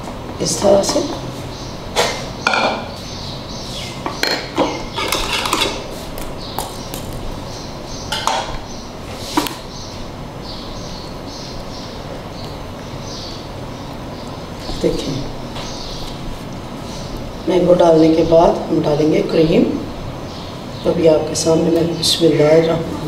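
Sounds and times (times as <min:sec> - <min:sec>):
utensils scraping dishes: 0:04.2 - 0:06.0.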